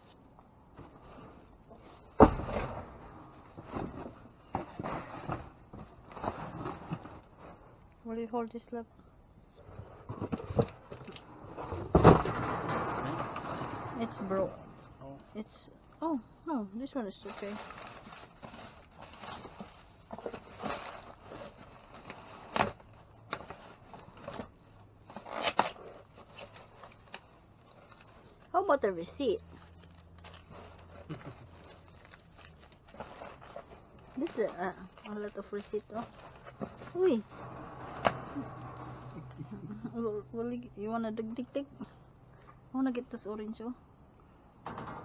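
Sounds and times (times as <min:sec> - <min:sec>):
knocks and rustles: 0:00.7 - 0:07.8, 0:09.6 - 0:15.4, 0:29.4 - 0:39.8, 0:44.6 - 0:45.0
sharp bang in dumpster: 0:11.6 - 0:15.0.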